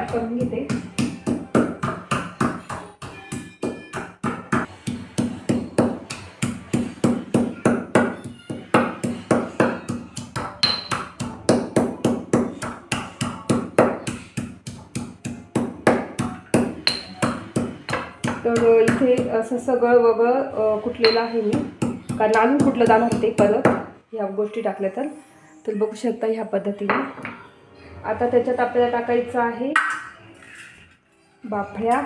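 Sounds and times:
pestle pounding in a mortar: 0:00.0 - 0:19.3, 0:21.0 - 0:23.9.

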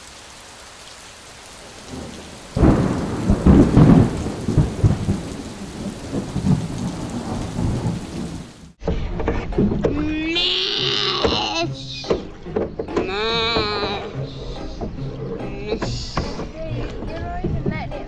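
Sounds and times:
rain hissing: 0:00.0 - 0:08.8
thunder rumbling: 0:01.3 - 0:08.8.

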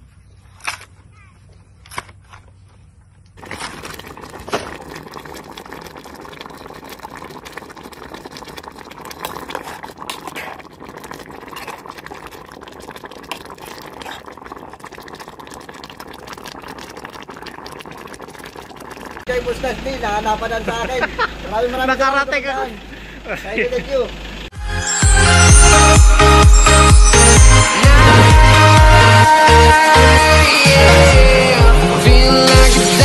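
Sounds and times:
curry bubbling in a pot: 0:03.4 - 0:19.3.

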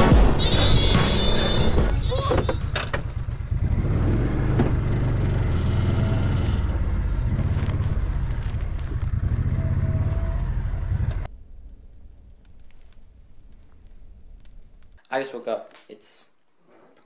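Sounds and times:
vehicle engine rumbling with rattle: 0:00.4 - 0:11.3.

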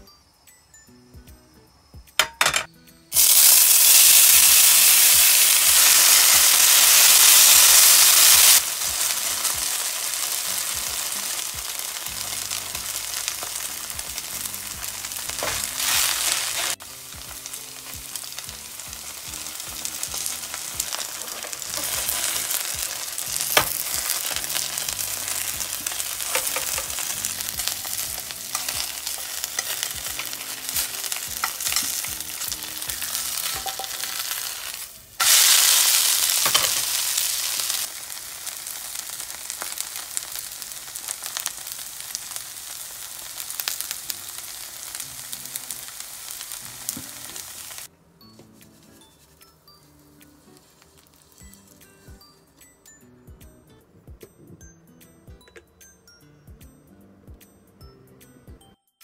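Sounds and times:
potato frying in hot oil: 0:03.2 - 0:47.9.

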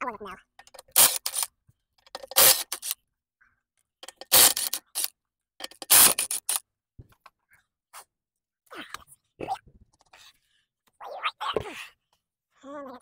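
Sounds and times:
hand tools clicking and clanking: 0:00.6 - 0:03.0, 0:04.0 - 0:06.6.

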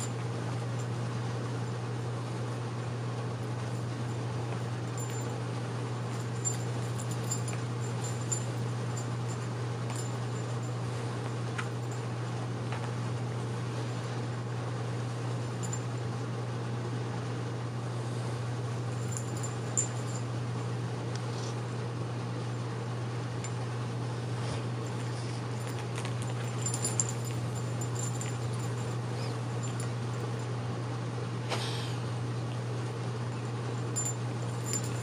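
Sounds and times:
room noise hum and hiss: 0:00.0 - 0:35.0
kittens scuffling: 0:24.3 - 0:30.5.

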